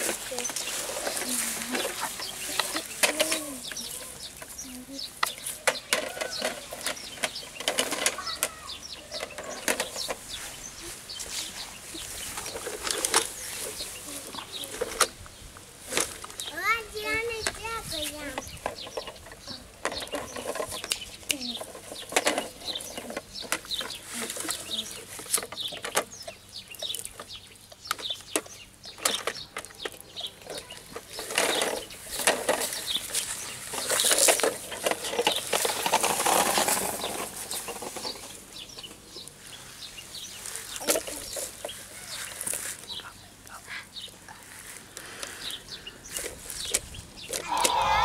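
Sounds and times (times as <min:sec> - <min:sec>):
plastic parts clicking and knocking: 0:00.0 - 0:04.5, 0:05.2 - 0:10.2, 0:12.4 - 0:13.4, 0:18.2 - 0:39.0, 0:40.8 - 0:41.8.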